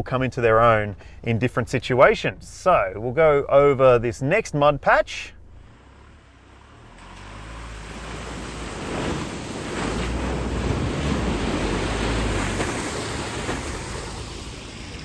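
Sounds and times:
low engine rumble: 0:00.0 - 0:15.0
water and mud splashing: 0:05.7 - 0:15.0.

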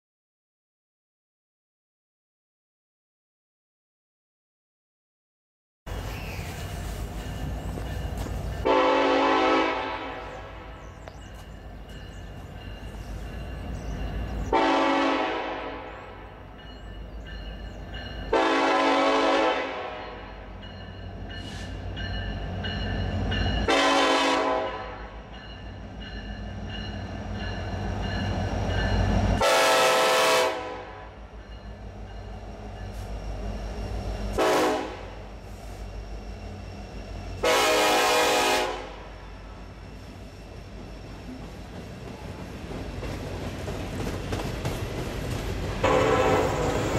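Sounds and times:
locomotive rumble: 0:05.9 - 0:46.9
locomotive horn blasts: 0:08.6 - 0:11.0, 0:14.5 - 0:16.4, 0:18.3 - 0:20.5, 0:23.6 - 0:25.2, 0:29.4 - 0:31.2, 0:34.4 - 0:35.3, 0:37.4 - 0:39.2, 0:45.8 - 0:46.8
freight cars rolling past: 0:39.0 - 0:46.9.

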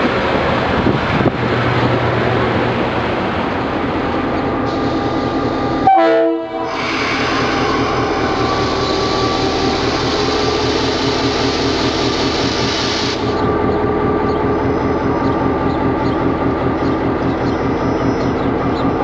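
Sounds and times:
locomotive horn blast: 0:05.8 - 0:11.0
diesel engine running: 0:07.9 - 0:19.0.

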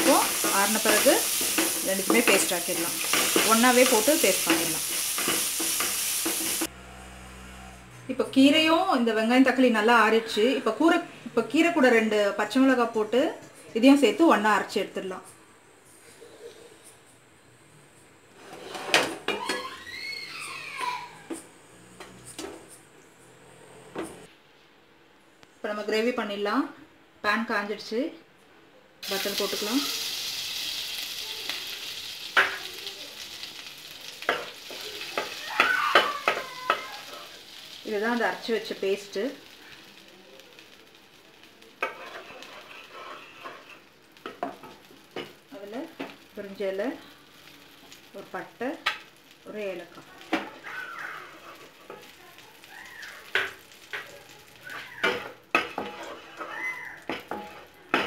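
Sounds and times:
butter sizzling in pan: 0:00.0 - 0:06.7, 0:29.0 - 0:58.0
spatula scraping a pan: 0:00.0 - 0:06.7, 0:41.8 - 0:44.8, 0:50.4 - 0:52.2, 0:54.7 - 0:58.0.

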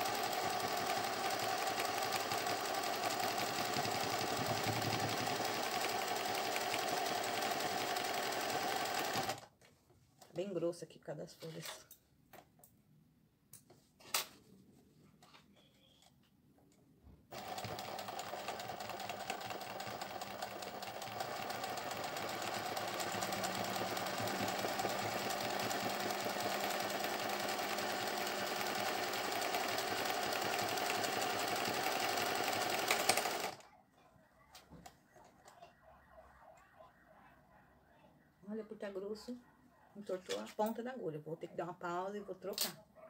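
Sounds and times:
sewing machine running: 0:00.0 - 0:09.4, 0:17.3 - 0:33.6.

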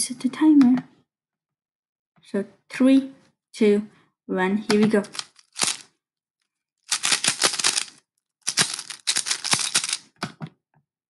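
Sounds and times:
puzzle cube clicking: 0:05.0 - 0:05.9, 0:06.9 - 0:10.1.

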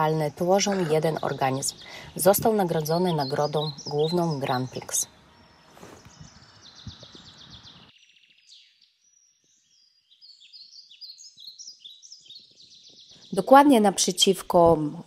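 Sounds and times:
low outdoor background noise: 0:00.0 - 0:15.0
songbirds singing: 0:00.0 - 0:15.0.

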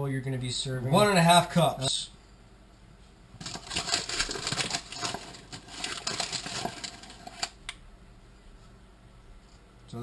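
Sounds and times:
paper bag rustling: 0:03.4 - 0:07.6.

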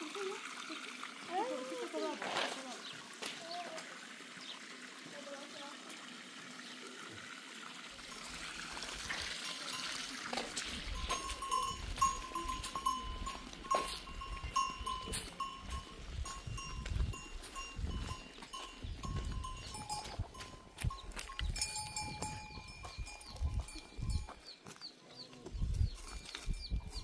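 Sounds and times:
livestock bell ringing: 0:08.0 - 0:24.6, 0:26.0 - 0:27.0
lower-pitched bell ringing: 0:10.8 - 0:24.5.

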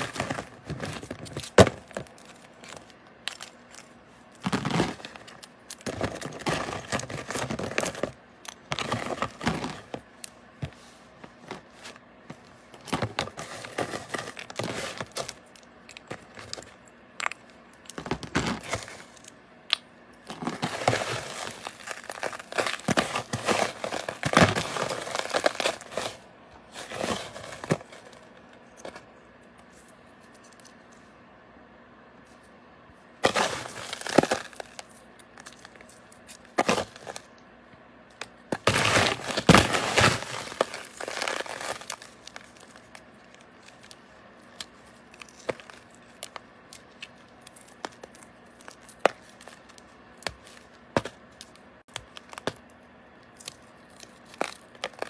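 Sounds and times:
crystals crunching and crackling: 0:00.0 - 0:10.0, 0:20.2 - 0:26.2, 0:33.2 - 0:37.4, 0:38.2 - 0:52.6, 0:53.2 - 0:55.0.

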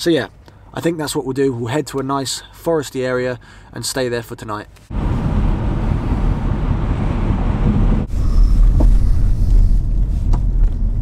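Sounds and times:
road and engine rumble: 0:03.3 - 0:11.0.

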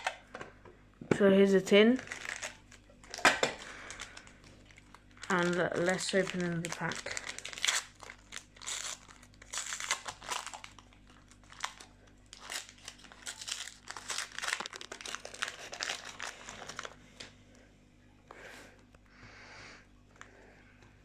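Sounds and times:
wrapper crinkling and tearing: 0:01.9 - 0:17.0.

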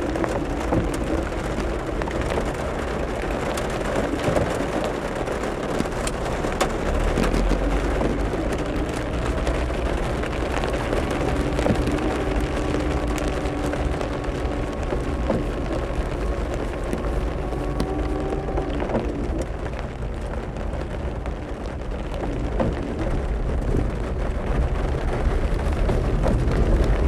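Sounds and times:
heavy rain on car roof: 0:00.0 - 0:27.0
low car hum: 0:00.0 - 0:27.0.

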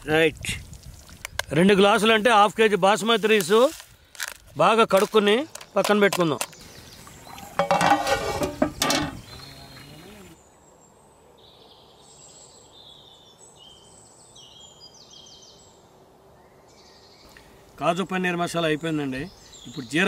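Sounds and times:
birds chirping and calling: 0:05.0 - 0:10.7, 0:16.8 - 0:20.0.

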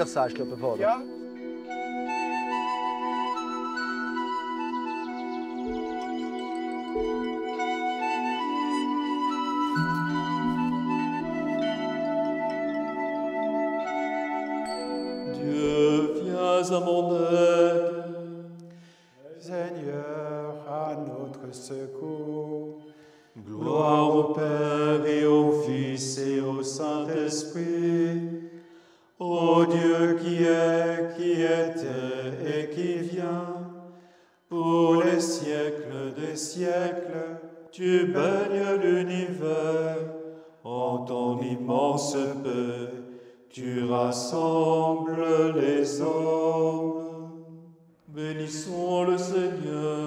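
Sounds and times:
men chanting: 0:23.4 - 0:28.0.

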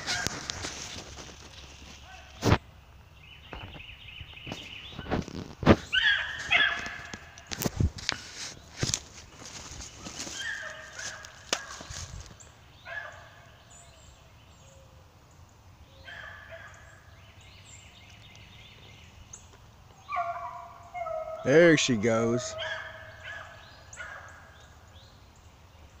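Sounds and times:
footsteps in dry leaves: 0:00.0 - 0:02.6, 0:04.5 - 0:13.0
beagles baying: 0:05.8 - 0:07.6, 0:10.0 - 0:15.0, 0:15.9 - 0:17.2, 0:19.9 - 0:24.8.

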